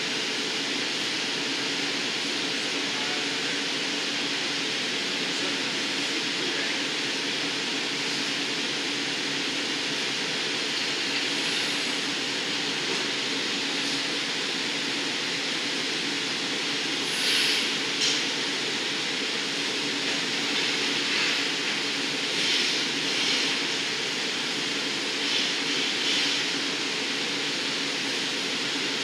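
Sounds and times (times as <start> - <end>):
gas furnace roar: 0.0 - 29.0
brief hissing: 17.1 - 18.2.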